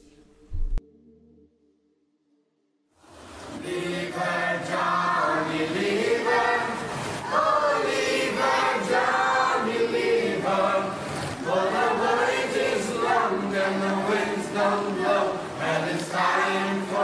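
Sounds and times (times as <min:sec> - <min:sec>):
group of voices singing in chorus: 0:03.5 - 0:17.0.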